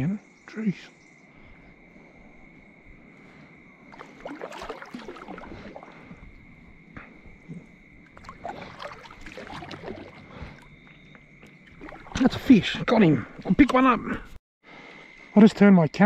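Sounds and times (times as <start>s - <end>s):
paddle splashing in water: 3.8s - 13.6s
water dripping: 3.9s - 13.8s.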